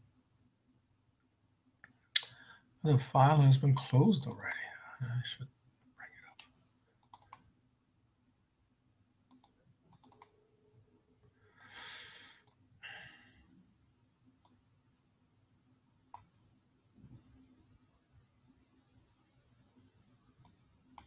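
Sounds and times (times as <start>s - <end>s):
faint computer mouse clicks: 6.3s - 7.5s, 9.3s - 10.3s, 16.1s - 16.3s.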